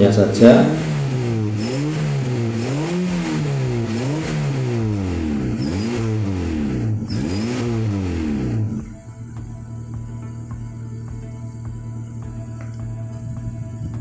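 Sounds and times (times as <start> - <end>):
car engine revving: 0.0 - 14.0.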